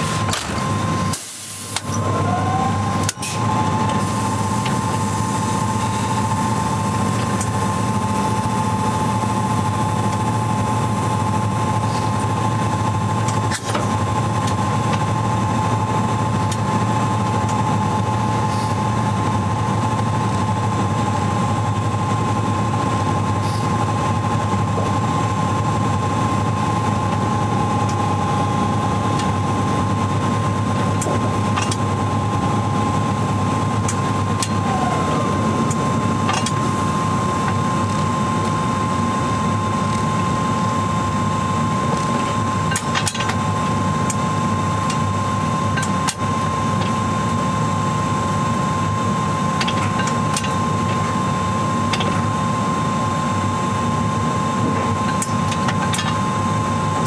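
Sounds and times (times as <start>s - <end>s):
locomotive electrical hum and whine: 0.0s - 57.0s
rising whine: 0.6s - 13.3s, 14.1s - 42.7s.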